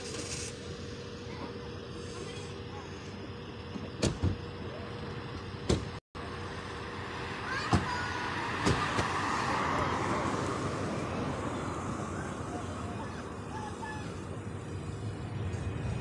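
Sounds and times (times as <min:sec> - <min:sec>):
outdoor background noise: 0:00.0 - 0:16.0
car driving past: 0:06.7 - 0:12.9.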